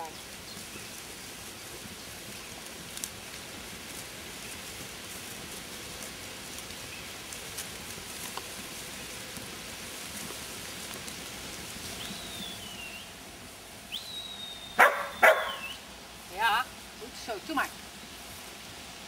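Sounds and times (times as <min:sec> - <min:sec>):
steady hiss: 0:00.0 - 0:19.0
high shepherd's whistle: 0:12.0 - 0:13.1, 0:13.9 - 0:15.8
dog barking loudly: 0:14.8 - 0:15.8.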